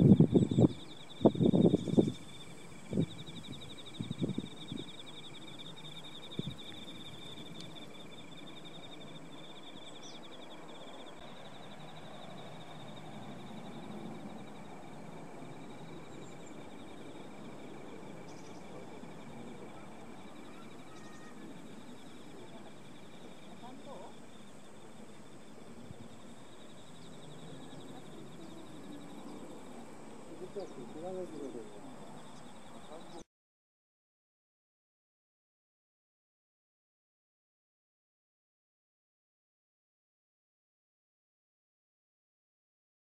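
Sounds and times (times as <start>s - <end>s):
insects chirping: 0.0s - 33.2s
faint outdoor background noise: 0.0s - 33.3s.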